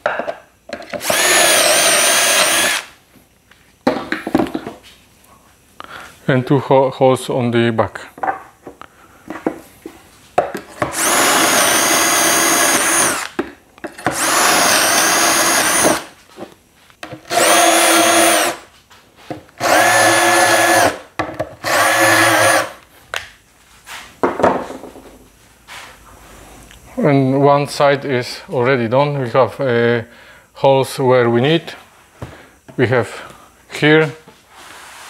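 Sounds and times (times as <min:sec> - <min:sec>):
cordless drill boring: 0:01.0 - 0:02.9, 0:10.9 - 0:13.3, 0:14.1 - 0:16.1, 0:17.3 - 0:18.6, 0:19.6 - 0:21.0, 0:21.6 - 0:22.8.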